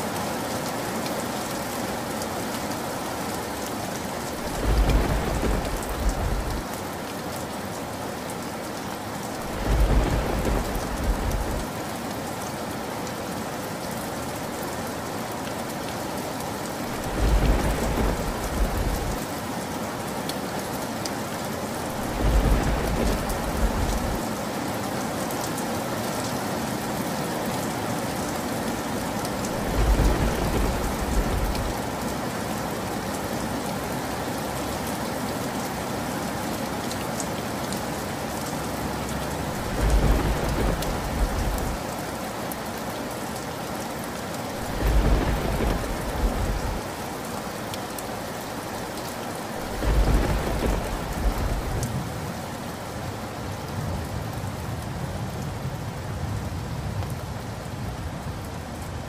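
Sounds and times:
steady rain: 0.0s - 59.0s
thunder rumbling: 4.4s - 6.7s, 9.4s - 11.7s, 16.9s - 19.2s, 21.9s - 24.2s, 29.5s - 31.9s, 39.6s - 41.8s, 44.6s - 47.0s, 49.6s - 52.1s.

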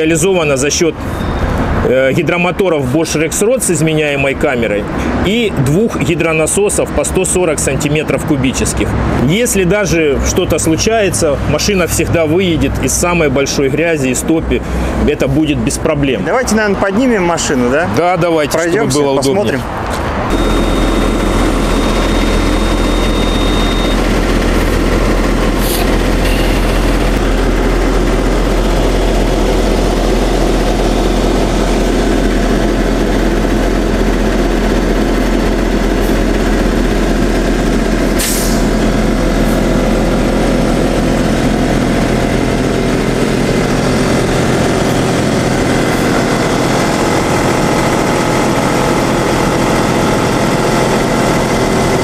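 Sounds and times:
engine running: 0.0s - 52.0s
thin high tone: 20.3s - 24.1s.

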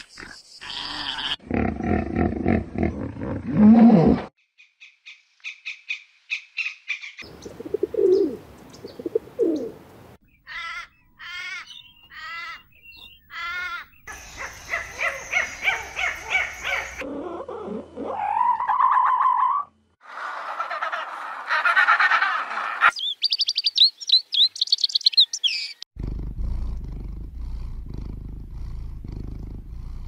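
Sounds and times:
rising animal call: 14.7s - 23.0s.

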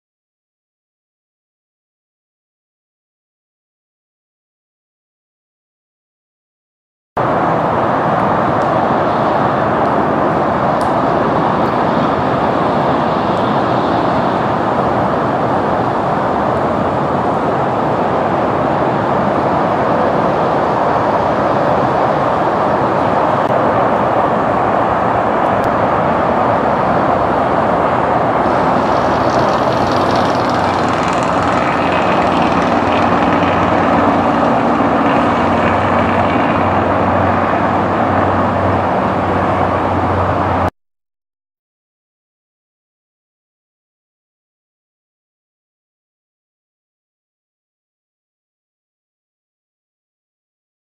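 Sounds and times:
jet airliner landing: 7.2s - 40.7s
jet engine whine: 7.2s - 40.7s.

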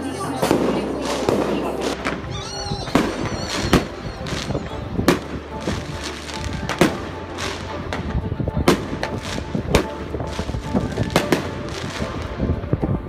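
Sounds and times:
music: 0.0s - 13.0s
fireworks bangs: 0.3s - 13.0s.

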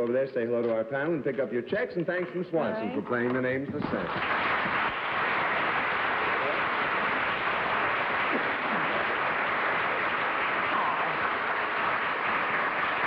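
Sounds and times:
audience applauding: 3.8s - 13.0s.

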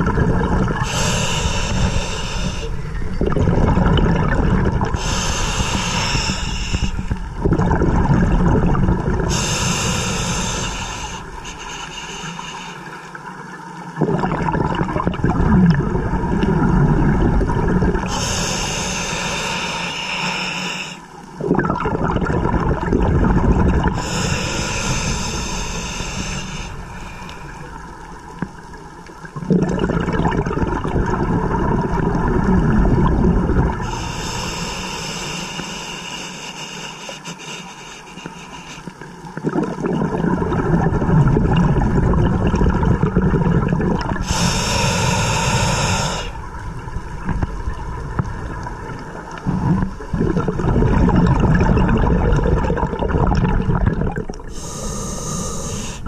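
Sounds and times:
bubbling gurgling exhale: 0.0s - 12.7s, 13.8s - 56.0s
hissing regulator inhale: 0.8s - 3.0s, 4.9s - 7.2s, 9.3s - 13.2s, 18.0s - 21.2s, 24.0s - 27.7s, 33.8s - 39.2s, 44.1s - 46.5s, 54.4s - 56.0s.

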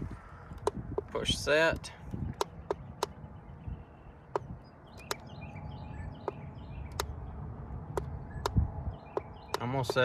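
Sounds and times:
low wind rumble: 0.0s - 10.0s
button clicks: 4.3s - 5.2s.

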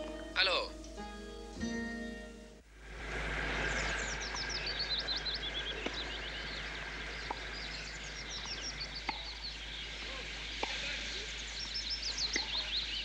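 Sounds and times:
songbirds chirping: 0.0s - 13.0s
tennis ball being struck: 9.0s - 9.4s, 10.6s - 10.8s.

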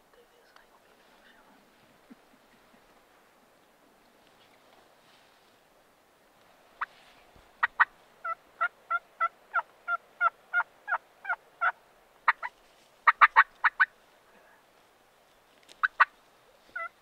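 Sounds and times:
wild turkey calling: 7.6s - 14.0s, 15.8s - 17.0s.

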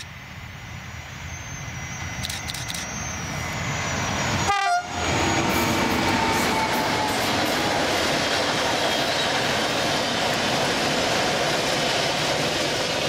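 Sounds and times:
electric train running: 0.0s - 13.0s
train horn blast: 4.4s - 5.2s.

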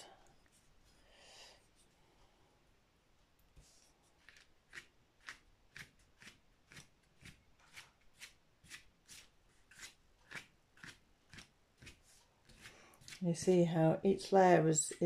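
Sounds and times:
wet paintbrush strokes: 3.5s - 15.0s.

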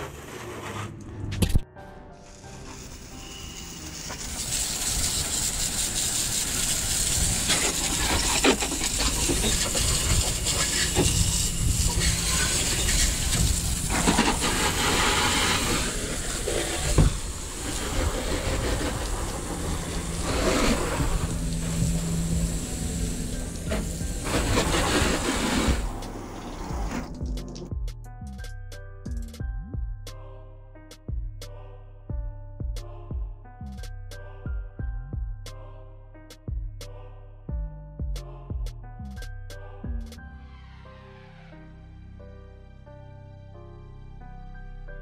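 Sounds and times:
hose spraying water: 2.2s - 27.7s.

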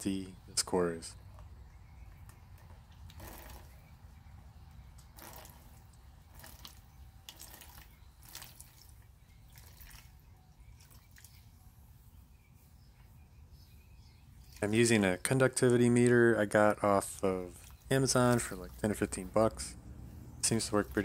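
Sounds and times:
liquid dripping into plastic tub: 4.9s - 11.4s.

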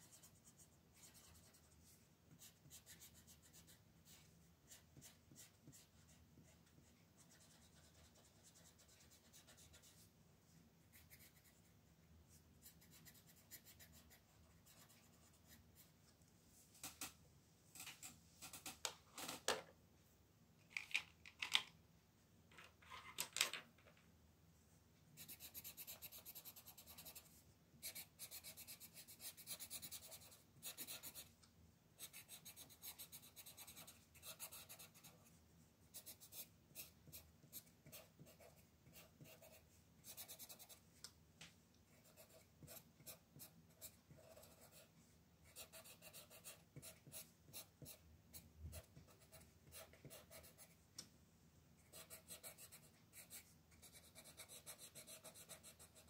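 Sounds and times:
colored pencil scratching on paper: 0.0s - 10.1s, 10.9s - 11.7s, 12.6s - 15.9s, 25.2s - 31.3s, 32.0s - 35.3s, 35.9s - 40.8s, 42.0s - 50.8s, 51.8s - 56.0s.

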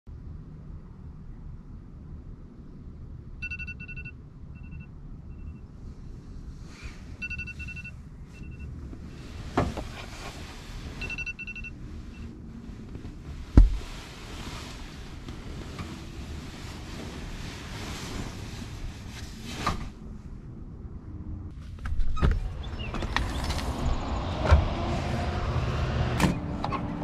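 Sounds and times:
steady low rumble: 0.1s - 27.0s
phone alarm beeping: 3.4s - 5.7s, 7.2s - 8.7s, 11.0s - 12.3s.

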